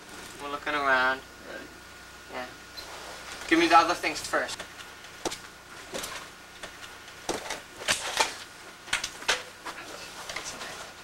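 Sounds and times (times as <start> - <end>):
clothing and objects shifting: 2.8 - 3.7, 9.2 - 11.0.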